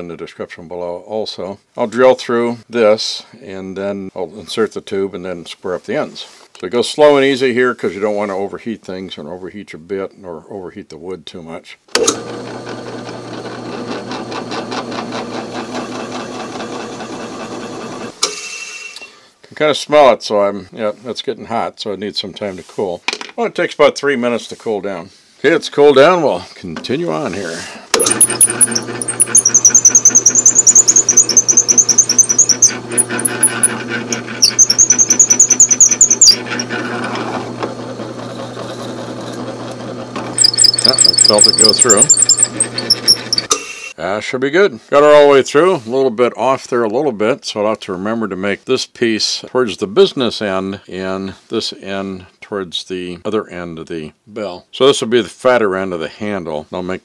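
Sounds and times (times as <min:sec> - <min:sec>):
drill press motor hum: 0:12.0 - 0:18.1, 0:27.9 - 0:43.9
drill bit ticking through wood: 0:27.9 - 0:38.2, 0:39.3 - 0:43.8.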